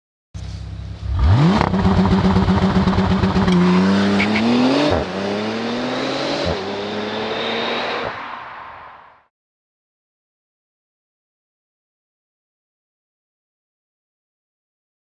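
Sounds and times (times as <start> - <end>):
car engine revving and accelerating: 1.0 - 8.5.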